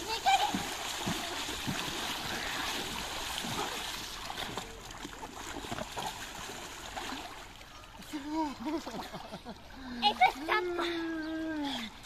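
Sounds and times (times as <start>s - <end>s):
hands paddling in water: 0.0s - 7.4s
pool water splashing and sloshing: 0.0s - 12.0s.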